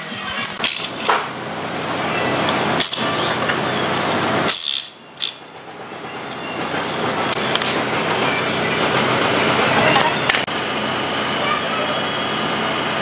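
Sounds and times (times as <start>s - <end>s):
metal engine parts and tools clinking: 0.5s - 1.6s, 2.4s - 3.6s, 4.5s - 8.4s.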